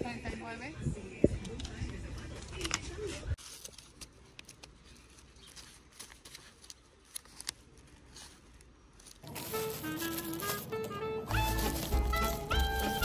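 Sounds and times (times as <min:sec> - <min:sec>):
paper money rustling: 0:03.4 - 0:13.0
background music: 0:09.2 - 0:13.0.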